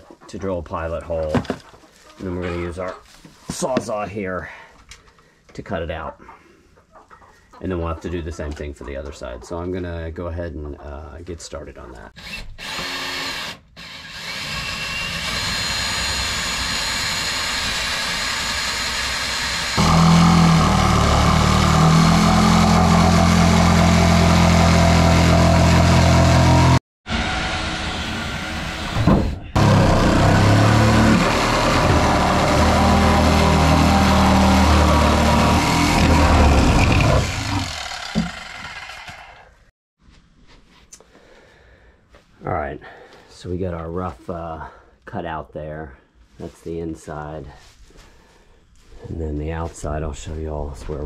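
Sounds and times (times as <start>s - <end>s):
cordless drill boring into wood: 12.2s - 26.8s, 29.6s - 39.5s
reciprocating saw cutting wood: 12.2s - 39.6s.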